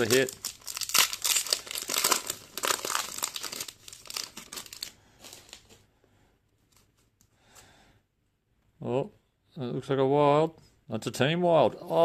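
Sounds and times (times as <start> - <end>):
foil wrappers crinkling and tearing: 0.0 - 5.7.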